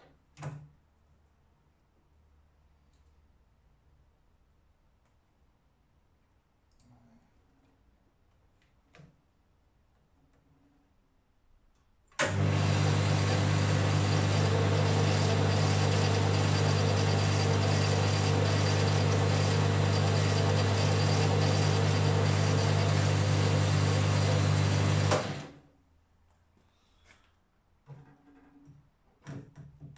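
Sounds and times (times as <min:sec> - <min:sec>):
lathe motor humming and whirring: 0:12.2 - 0:25.5.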